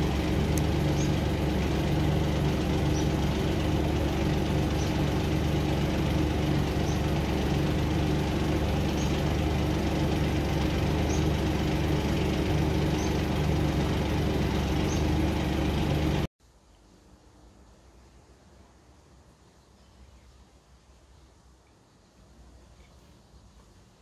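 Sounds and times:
engine idling hum: 0.0s - 16.3s.

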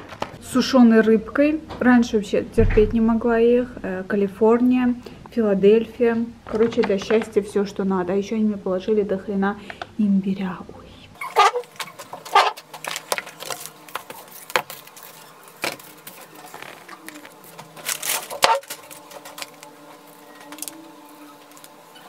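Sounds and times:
food packaging rustling: 11.2s - 22.0s.

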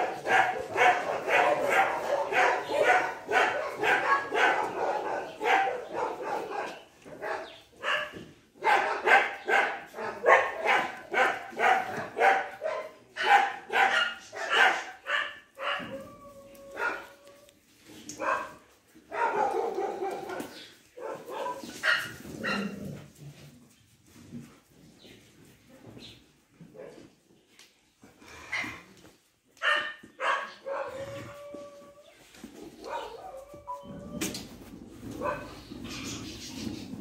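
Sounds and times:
dogs barking: 0.0s - 16.1s, 16.7s - 17.2s, 18.2s - 22.9s, 29.6s - 31.6s, 32.8s - 34.1s, 35.0s - 35.8s.

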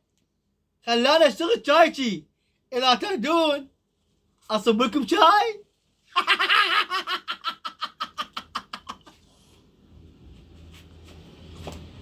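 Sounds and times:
man laughing heartily: 6.1s - 9.3s
faint low rumble: 9.6s - 12.0s.

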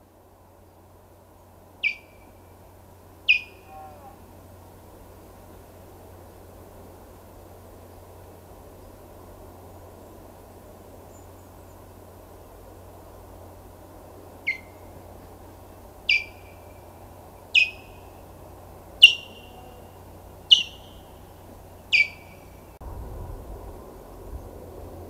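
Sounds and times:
steady low hum: 0.0s - 25.0s
osprey alarm calls: 1.8s - 2.5s, 3.2s - 4.2s, 14.4s - 15.0s, 16.0s - 18.4s, 19.0s - 22.8s.

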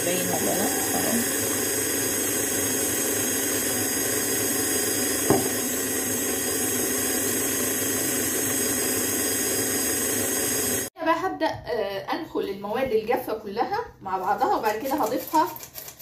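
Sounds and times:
stand mixer motor whine: 0.0s - 10.9s
knock: 5.2s - 5.6s.

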